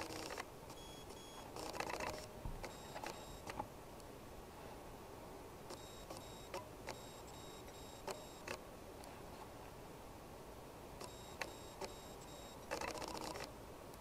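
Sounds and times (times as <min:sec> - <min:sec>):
faint high-pitched tones: 0:00.7 - 0:01.6, 0:05.7 - 0:08.6, 0:11.0 - 0:12.8.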